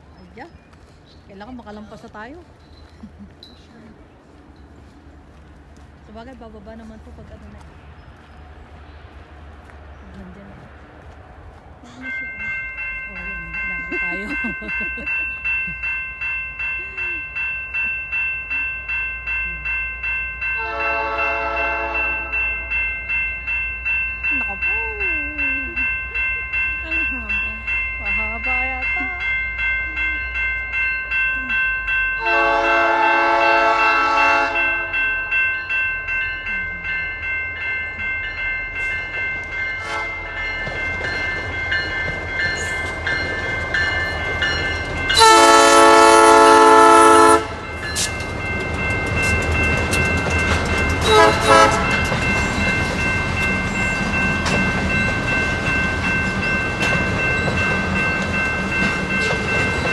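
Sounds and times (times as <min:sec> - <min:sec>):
freight train rumbling past: 0:00.0 - 0:59.9
railway crossing bells ringing: 0:00.0 - 0:59.9
train air horn blasts: 0:20.6 - 0:22.4, 0:32.2 - 0:34.9, 0:39.8 - 0:40.4, 0:45.2 - 0:47.6, 0:51.0 - 0:52.0.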